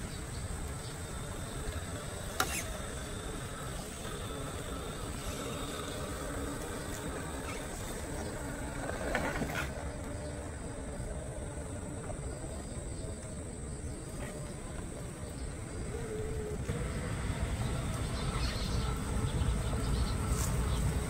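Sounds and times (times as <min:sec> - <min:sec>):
grass rustling: 0:17.9 - 0:21.0.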